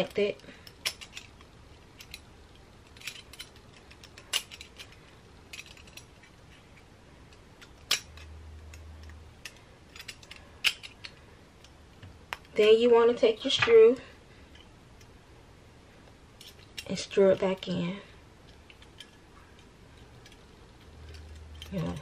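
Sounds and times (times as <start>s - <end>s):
small metal clicks and clinks: 0.0s - 6.3s, 7.3s - 11.7s, 16.4s - 17.8s, 18.4s - 22.0s.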